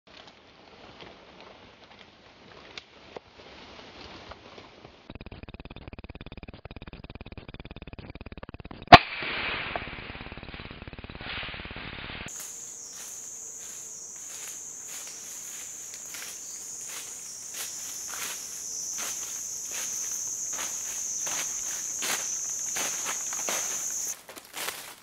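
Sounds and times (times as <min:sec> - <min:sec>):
high-pitched insect trill: 0:09.8 - 0:24.2
footsteps in dry leaves: 0:12.3 - 0:25.0.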